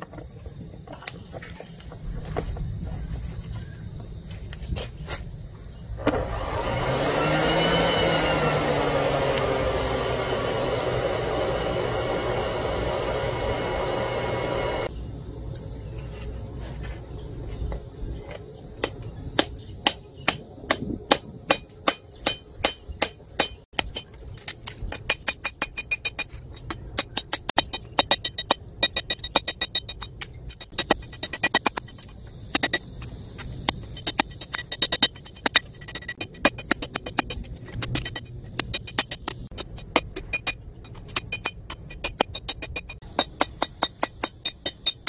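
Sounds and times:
forge blower rushing: 0:06.0 - 0:14.9
hammer striking metal on anvil: 0:19.4 - 0:24.1.

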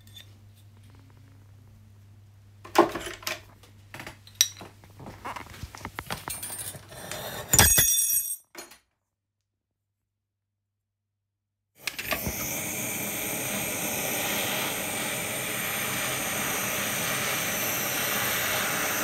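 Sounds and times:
loud ringing metal clink: 0:07.6 - 0:08.4.

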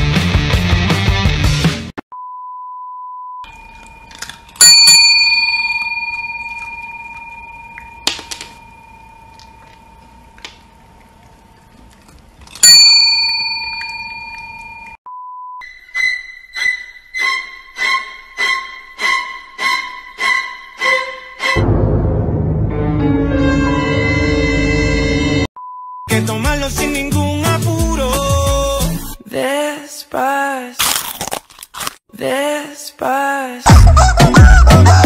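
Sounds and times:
desk service bell ringing: 0:03.5 - 0:10.3, 0:12.6 - 0:15.0.

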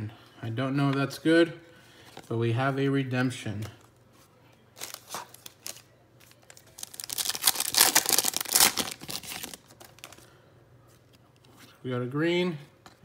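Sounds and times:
foil wrapper crinkling and tearing: 0:04.8 - 0:10.2.

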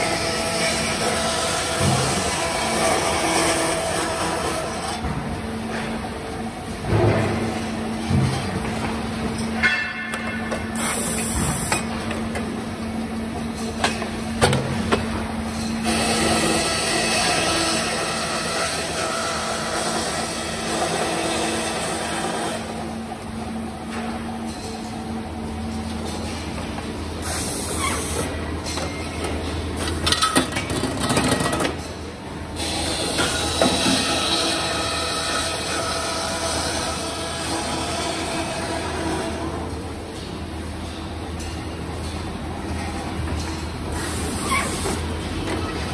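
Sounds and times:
machinery humming: 0:31.9 - 0:45.9.

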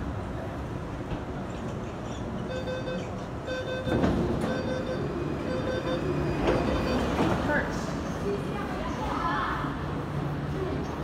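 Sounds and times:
train door warning beeps: 0:02.4 - 0:07.3
rush of door and platform noise: 0:03.7 - 0:08.2.

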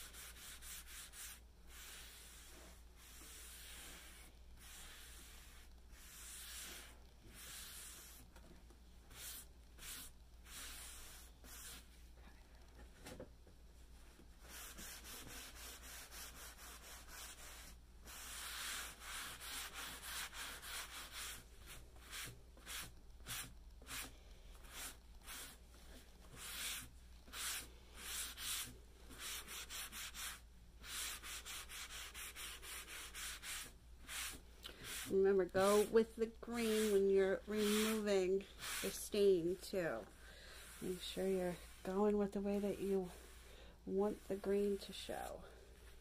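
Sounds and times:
paper towel rubbing wood: 0:00.0 - 0:08.2, 0:14.4 - 0:39.5.

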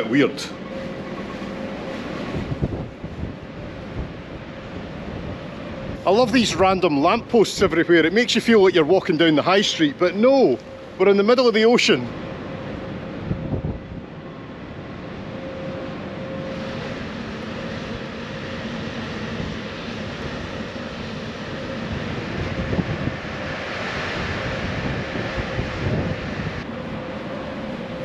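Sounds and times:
ship rumble: 0:00.0 - 0:28.0
wind: 0:00.0 - 0:28.0
wind on microphone: 0:00.5 - 0:08.2, 0:12.1 - 0:28.0.

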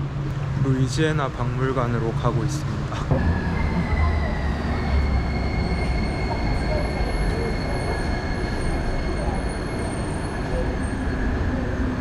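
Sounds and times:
train rumbling: 0:00.0 - 0:12.0
high-pitched whine: 0:03.0 - 0:12.0.

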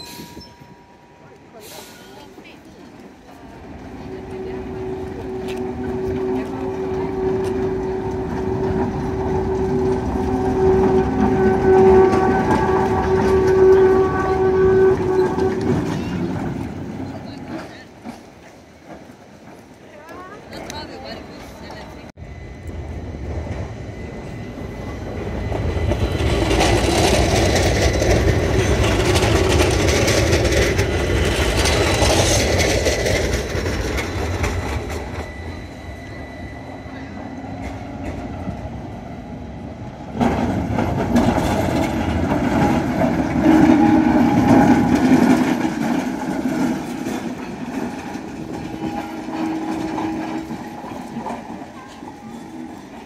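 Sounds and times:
tram rumble: 0:00.0 - 0:53.0
tram wheels clattering on rails: 0:00.0 - 0:53.0.

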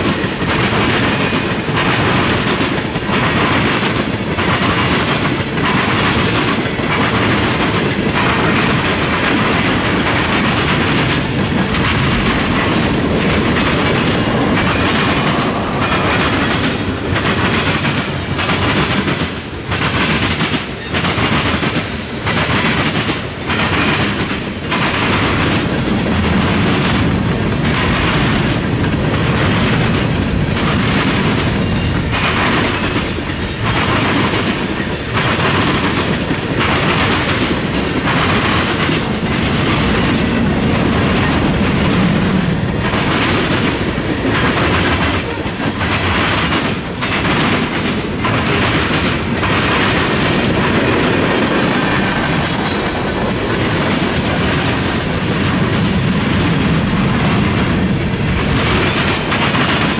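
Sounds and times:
freight train rumbling past: 0:00.0 - 0:59.9
wheels clacking over rail joints: 0:00.0 - 0:59.9.

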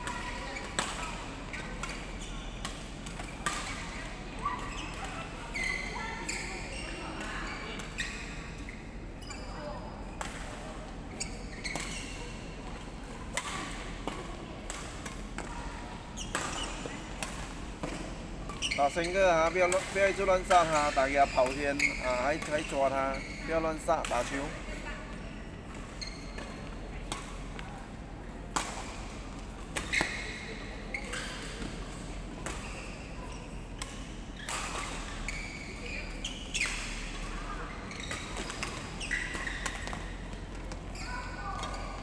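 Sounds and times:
shoes squeaking: 0:00.0 - 0:10.1, 0:11.0 - 0:12.6, 0:14.9 - 0:27.8, 0:28.9 - 0:42.0
rackets hitting shuttlecock: 0:16.2 - 0:18.8, 0:38.1 - 0:40.9.

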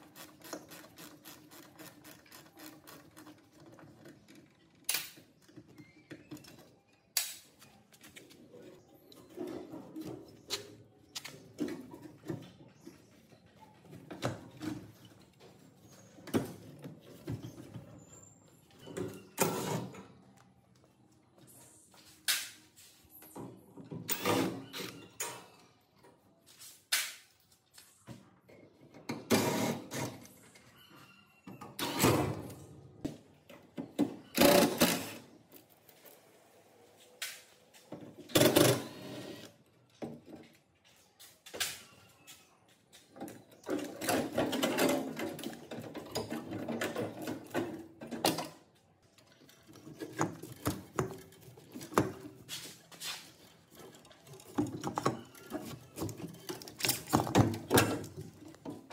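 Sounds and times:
tools scraping knocking and rattling: 0:42.9 - 0:58.9.

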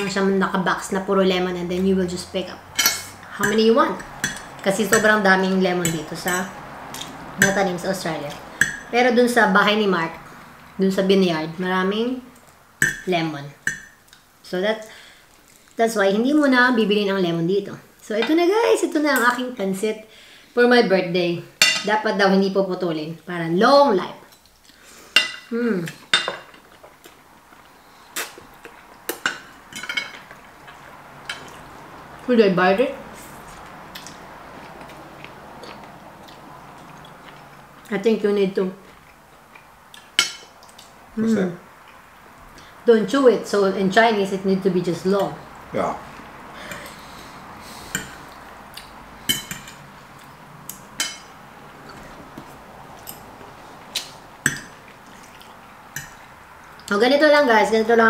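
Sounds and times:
forks clinking on plates: 0:02.8 - 0:05.1, 0:49.3 - 0:49.8.

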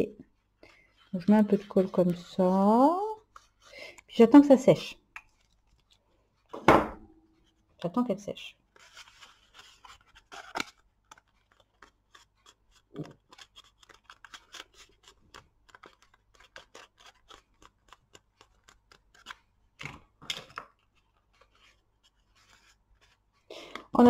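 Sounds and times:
card clicks scrapes and rustles: 0:08.7 - 0:19.6, 0:20.4 - 0:23.5.

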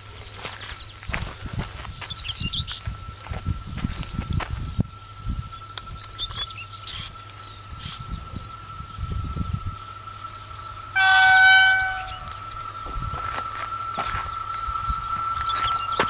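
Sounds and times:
birds chirping: 0:00.0 - 0:02.9, 0:03.7 - 0:16.0
wind rumble on microphone: 0:00.8 - 0:06.6, 0:07.6 - 0:16.0
train horn blast: 0:10.9 - 0:12.4.

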